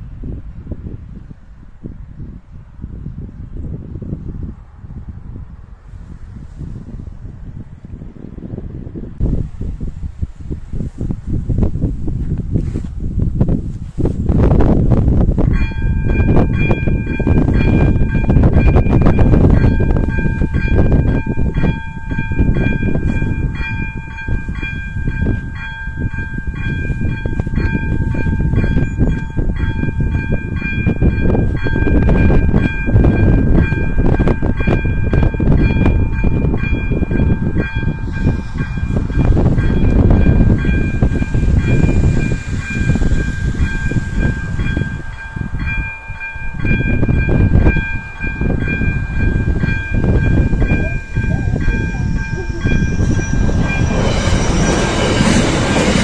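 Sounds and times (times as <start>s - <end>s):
heavy low rumble: 3.2s - 56.0s
level crossing electronic bell: 43.9s - 54.1s.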